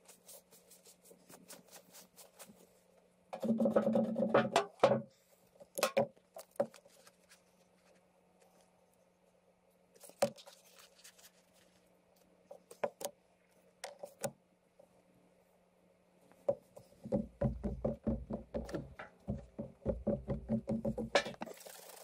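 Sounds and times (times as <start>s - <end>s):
faint steady low hum: 0.0s - 22.0s
knocks and taps: 16.5s - 21.4s.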